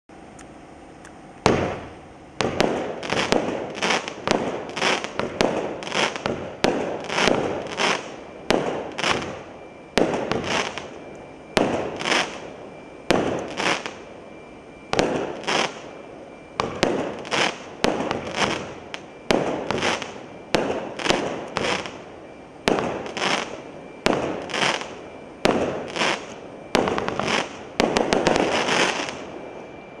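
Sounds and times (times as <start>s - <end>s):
crackling firework stars: 0.1s - 30.0s
firework launch pops: 1.4s - 3.6s.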